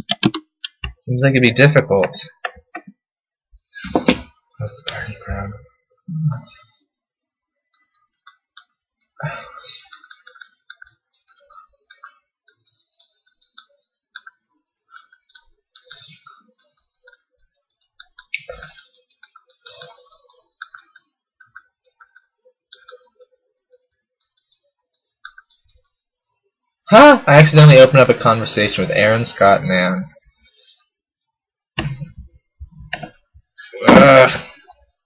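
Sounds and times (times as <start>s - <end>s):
keyboard key clicks: 0.0s - 1.0s.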